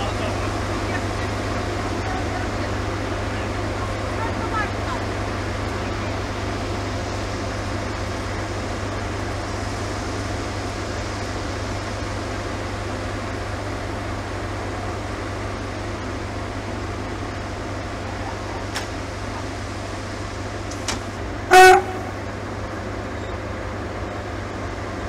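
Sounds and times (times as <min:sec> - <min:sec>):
diesel locomotive idling: 0:00.0 - 0:25.0.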